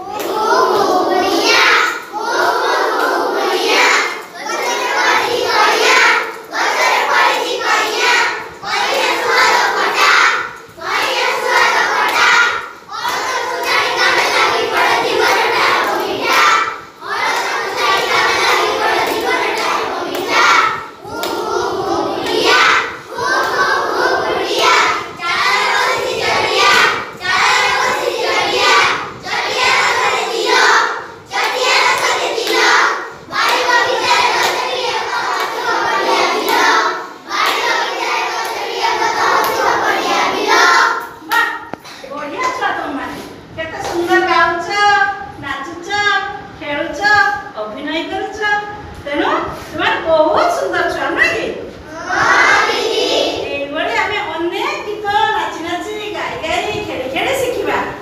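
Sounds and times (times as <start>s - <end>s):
children singing in unison: 0.0s - 41.2s, 51.9s - 53.4s.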